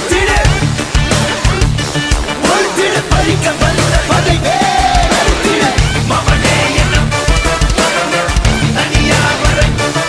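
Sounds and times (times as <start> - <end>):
loud music with heavy beat: 0.0 - 10.0.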